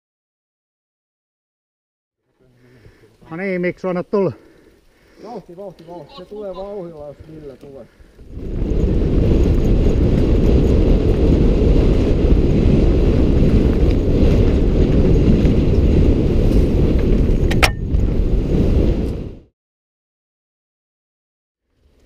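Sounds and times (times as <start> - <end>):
bike tyre rumble on gravel: 5.4 - 19.4
wind rushing over microphone: 7.9 - 19.5.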